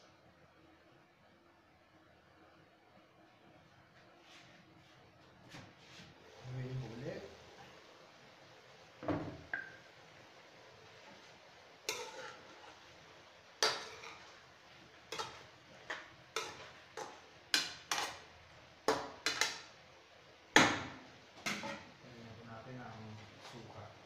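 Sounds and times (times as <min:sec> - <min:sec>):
metal spoon clinking in a pan: 0:11.9 - 0:12.6, 0:13.6 - 0:14.3, 0:15.1 - 0:15.5, 0:16.4 - 0:18.2.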